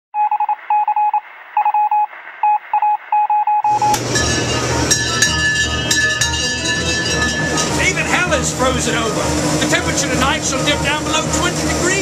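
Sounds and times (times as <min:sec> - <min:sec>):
morse code beeping: 0:00.2 - 0:07.9
refrigeration hum and hiss: 0:03.7 - 0:12.0
clinks: 0:03.9 - 0:07.9.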